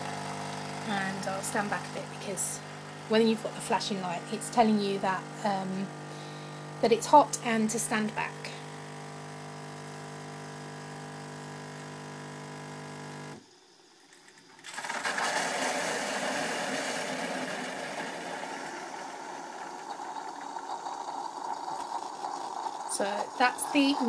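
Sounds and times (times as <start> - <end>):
coffee machine pump humming: 0.0 - 24.0
hissing rush of milk dispensing: 14.6 - 24.0.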